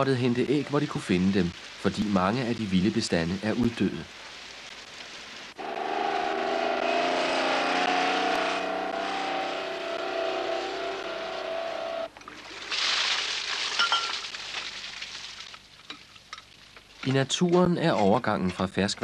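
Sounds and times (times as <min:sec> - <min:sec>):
water gushing from a hose: 0:00.0 - 0:05.6, 0:09.5 - 0:16.7
road noise: 0:02.4 - 0:12.7
truck engine drone: 0:05.6 - 0:12.1.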